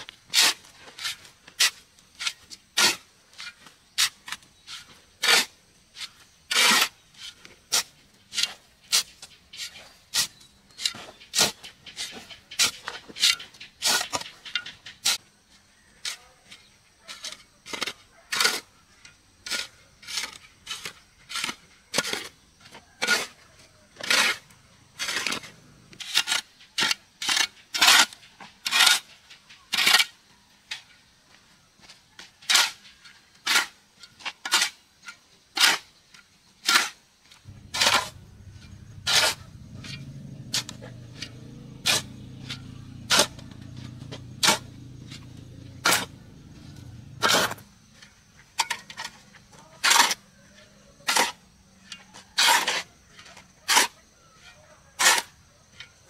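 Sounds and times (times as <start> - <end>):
short scraping strokes: 37.5 - 46.2.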